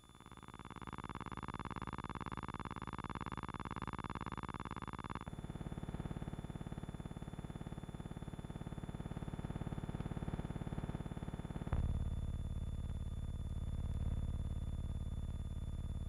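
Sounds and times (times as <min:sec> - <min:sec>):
electrical buzzing hum: 0:08.0 - 0:16.0.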